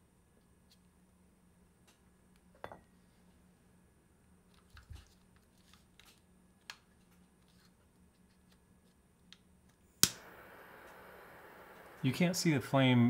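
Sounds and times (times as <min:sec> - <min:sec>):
torch handling clicks: 0:10.0 - 0:12.0
torch ignition click: 0:10.0 - 0:12.5
blow torch flame hissing: 0:10.0 - 0:13.0.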